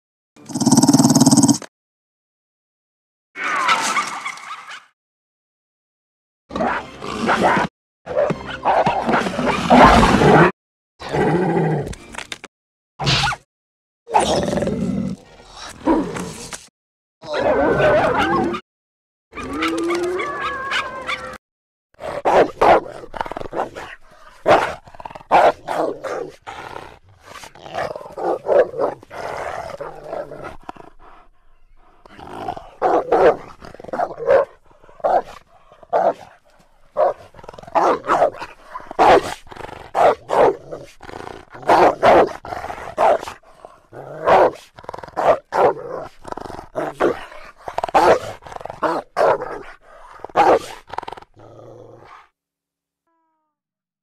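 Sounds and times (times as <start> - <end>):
hyena calls and growls: 17.2 - 18.6, 19.4 - 21.4, 22.0 - 36.3.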